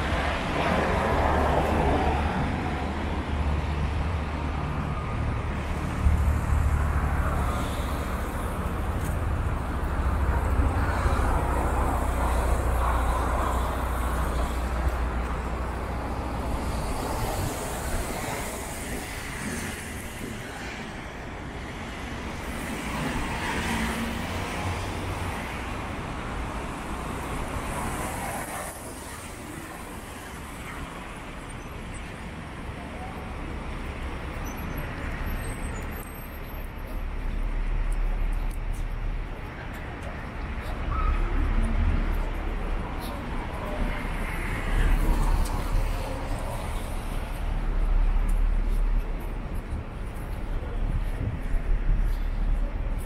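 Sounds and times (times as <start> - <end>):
murmur of passers-by: 0.0 - 53.0
street traffic passing: 0.0 - 53.0.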